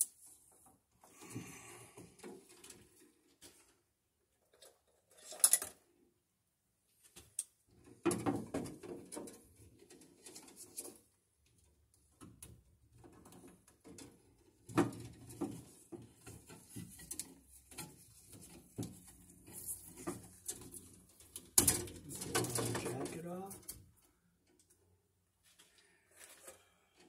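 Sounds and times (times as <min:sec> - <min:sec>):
wire rustling and scraping: 0:08.8 - 0:11.2, 0:13.0 - 0:24.7, 0:25.4 - 0:27.0.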